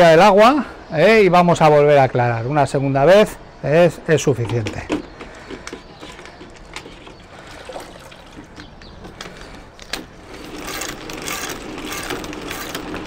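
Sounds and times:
water sloshing and trickling: 0:06.1 - 0:09.7.

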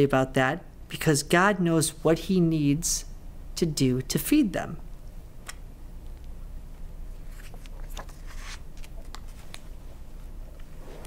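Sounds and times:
low room hum: 0:00.0 - 0:11.0
book pages rustling: 0:07.2 - 0:10.0.

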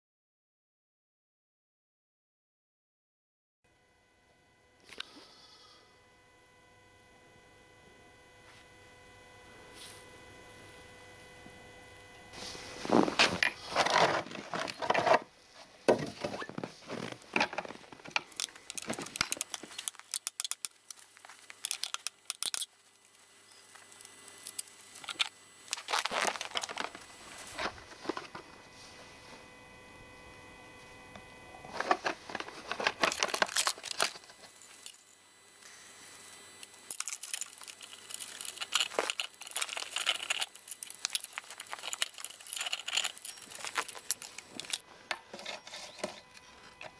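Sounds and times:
chainsaw chain handling clicks and rattles: 0:21.6 - 0:22.7, 0:36.9 - 0:44.8.

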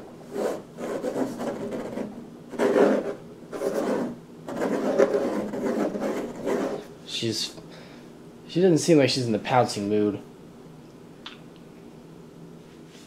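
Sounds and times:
fingers scratching on wood: 0:00.3 - 0:06.9.

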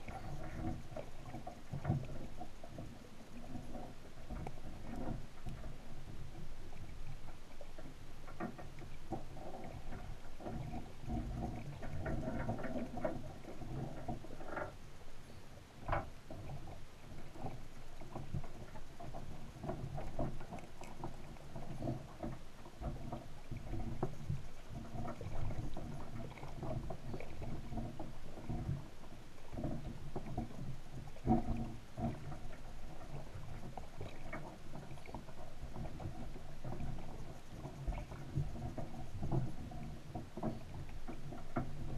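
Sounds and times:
muffled underwater rumble: 0:00.0 - 0:41.9
small clicks and knocks: 0:03.7 - 0:14.8, 0:15.8 - 0:16.7.

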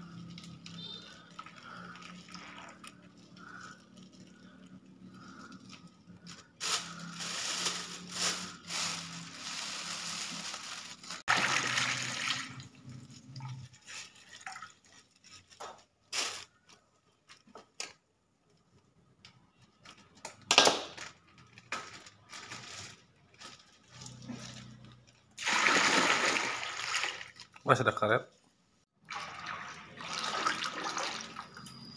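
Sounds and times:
plastic bags crinkling: 0:00.2 - 0:12.6, 0:13.5 - 0:17.5, 0:19.8 - 0:25.4.

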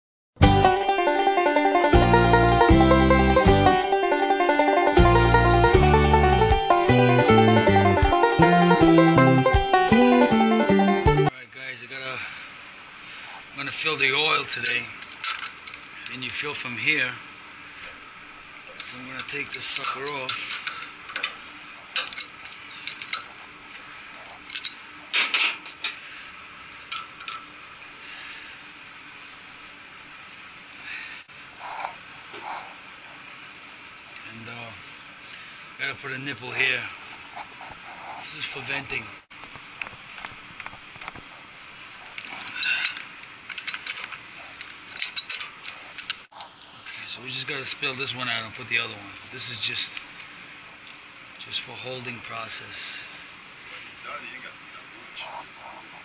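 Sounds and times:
steady background hiss: 0:00.6 - 0:56.0
pipe wrench clinking on metal: 0:14.4 - 0:15.8, 0:18.8 - 0:23.3, 0:26.9 - 0:27.5, 0:42.2 - 0:44.2, 0:44.9 - 0:46.2.

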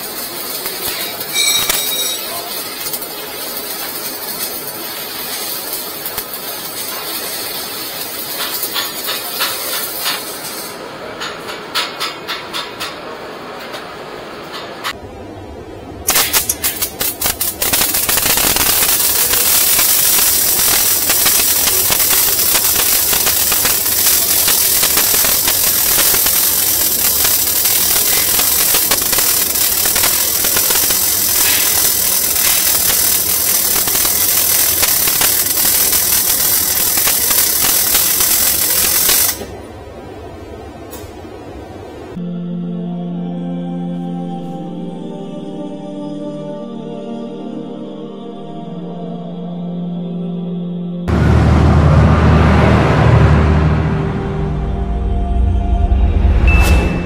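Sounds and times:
welding arc crackling: 0:00.0 - 0:10.8, 0:16.1 - 0:39.6.

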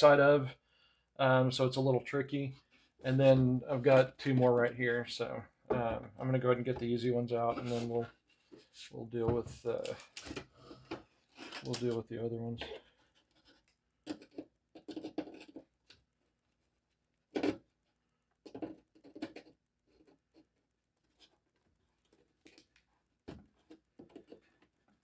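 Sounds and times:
plastic clicks scrapes and knocks: 0:12.6 - 0:16.0, 0:17.3 - 0:17.7, 0:18.4 - 0:21.4, 0:22.0 - 0:25.0.

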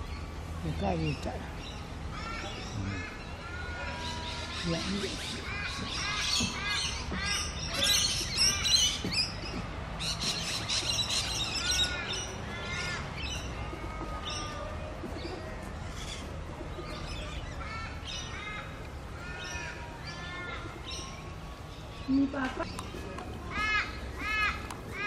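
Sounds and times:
birds chirping: 0:00.0 - 0:25.0.

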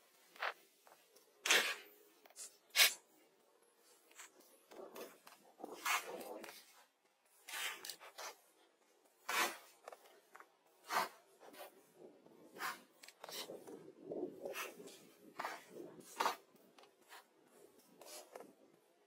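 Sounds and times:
dry scraping and rubbing strokes: 0:04.1 - 0:08.5, 0:09.2 - 0:18.5.

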